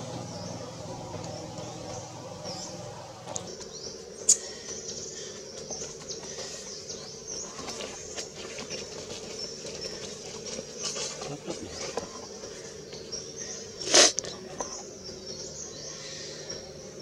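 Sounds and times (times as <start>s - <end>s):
low hum: 0.0s - 8.2s.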